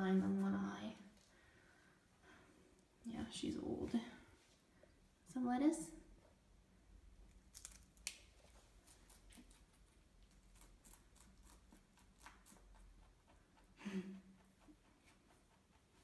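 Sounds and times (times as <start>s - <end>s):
rabbit crunching vegetables: 7.0s - 16.0s.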